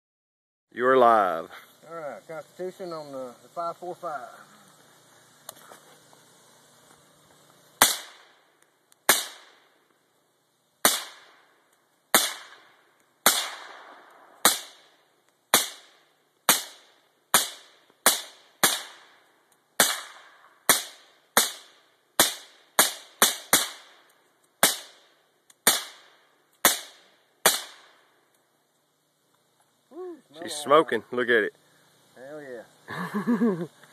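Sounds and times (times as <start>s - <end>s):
suppressed rifle shots: 7.8s - 8.3s, 13.2s - 14.9s, 25.6s - 27.9s.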